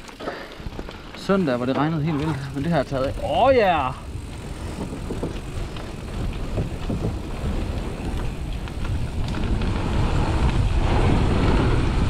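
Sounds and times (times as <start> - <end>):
bike rattling: 0.0 - 12.0
bike tyres rumbling on wooden boards: 0.0 - 12.0
wind on microphone: 2.2 - 12.0.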